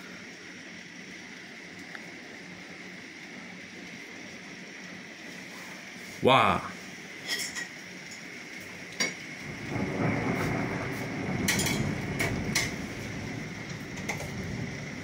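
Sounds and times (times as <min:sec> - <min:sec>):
thunder rumbling: 0:09.4 - 0:15.0.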